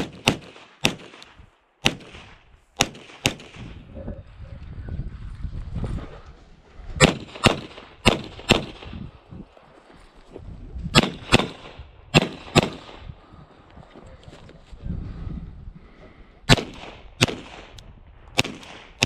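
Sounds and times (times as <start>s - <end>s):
pistol shots: 0.0s - 3.8s, 7.0s - 9.0s, 10.9s - 13.0s, 16.5s - 19.0s.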